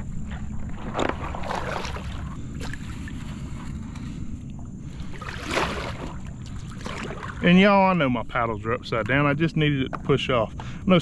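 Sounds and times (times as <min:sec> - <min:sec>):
water splashing around kayak: 0:00.0 - 0:08.0.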